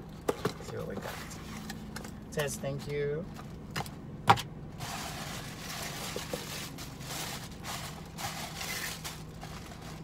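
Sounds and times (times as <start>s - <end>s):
cardboard rustling and scraping: 4.8s - 10.0s.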